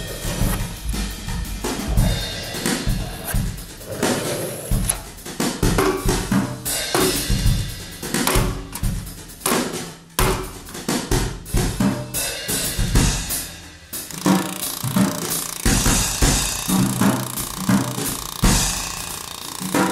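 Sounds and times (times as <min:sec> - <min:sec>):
music with drum-kit beat: 0:00.0 - 0:03.9, 0:04.6 - 0:14.2.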